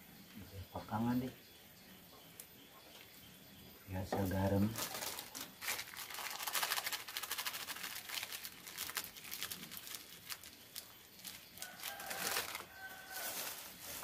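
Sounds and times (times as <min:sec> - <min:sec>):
plastic bag crinkling: 0:04.4 - 0:14.0.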